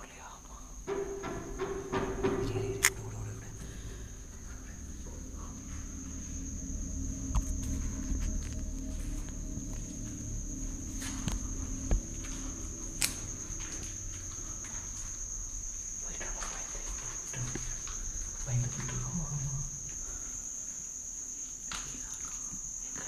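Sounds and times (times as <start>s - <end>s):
crickets trilling: 0.0s - 23.0s
sharp knock: 0.9s - 3.8s.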